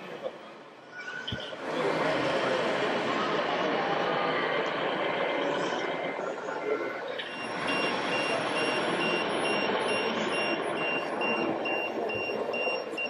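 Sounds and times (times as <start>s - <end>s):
steady background din: 0.0s - 13.0s
high electronic warning beeps: 7.2s - 13.0s.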